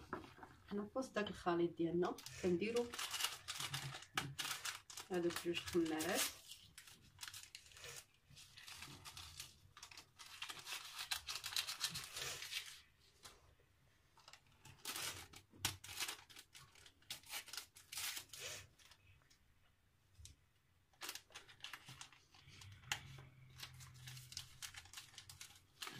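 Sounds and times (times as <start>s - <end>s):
paper crinkling: 2.0s - 13.4s, 14.2s - 19.2s, 20.9s - 25.9s
paper sachets tearing: 2.2s - 12.8s, 14.6s - 18.9s, 21.0s - 25.9s.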